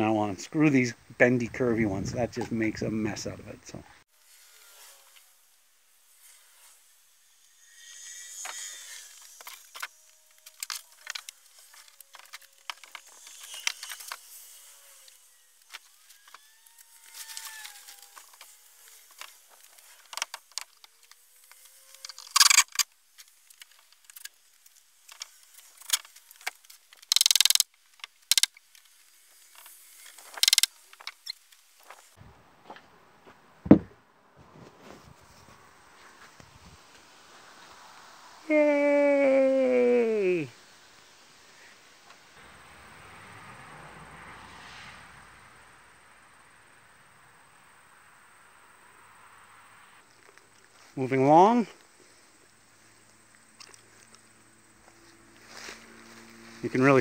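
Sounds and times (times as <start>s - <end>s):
camera handling rubbing and clicking: 25.1s - 28.5s, 30.2s - 31.4s
heavy thump: 33.6s - 34.0s.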